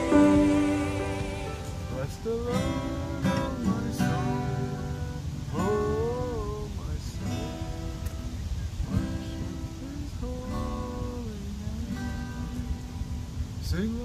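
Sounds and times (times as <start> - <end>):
man singing: 0.0 - 8.4, 9.2 - 12.8, 13.6 - 14.0
acoustic guitar strumming: 0.0 - 14.0.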